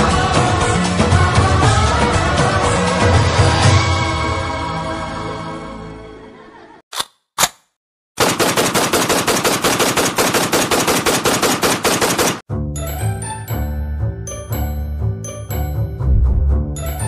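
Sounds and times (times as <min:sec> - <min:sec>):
automatic rifle gunfire: 0:08.2 - 0:12.4.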